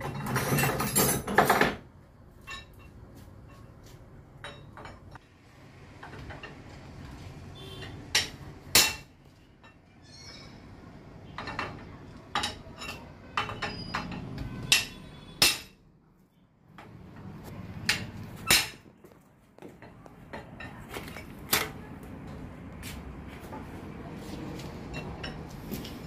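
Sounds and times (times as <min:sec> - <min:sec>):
hammer striking metal: 0:08.1 - 0:09.1, 0:13.4 - 0:15.8.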